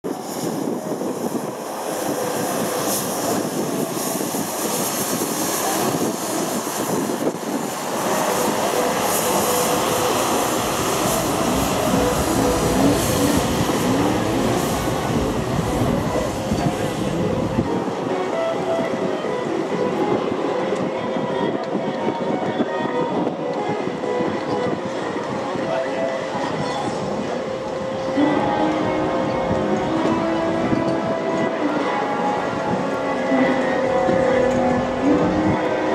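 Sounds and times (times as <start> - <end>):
tractor diesel engine rumble: 7.0 - 17.7.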